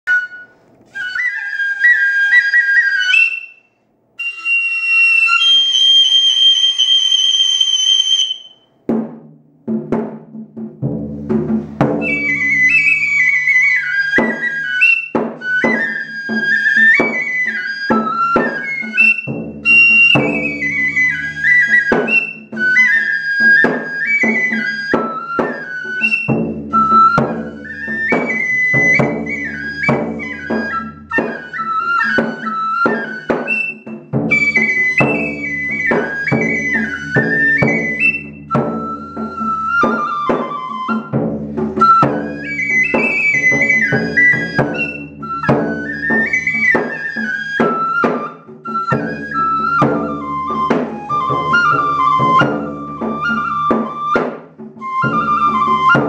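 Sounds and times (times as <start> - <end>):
bamboo flute melody: 0.0 - 8.8, 10.8 - 56.0
taiko drum strikes: 8.8 - 12.9, 19.3 - 21.1, 26.3 - 31.3, 33.9 - 39.5.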